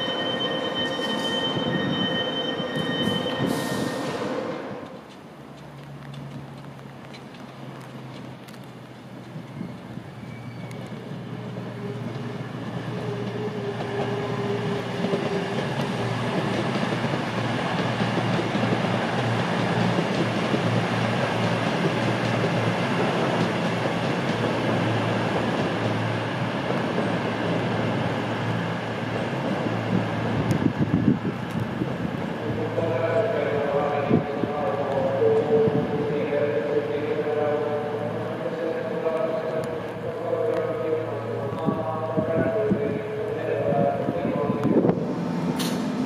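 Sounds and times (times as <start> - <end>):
train rumble: 0.0 - 46.0.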